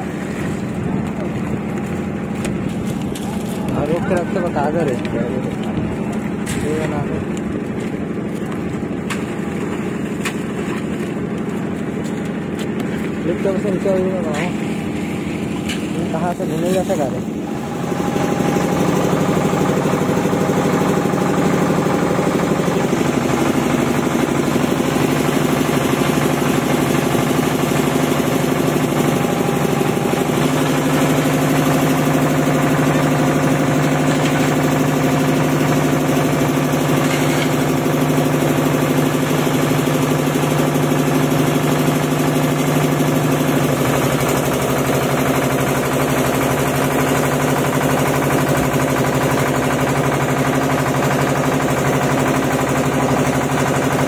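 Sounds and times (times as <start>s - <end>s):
concrete mixer engine running: 0.0s - 54.0s.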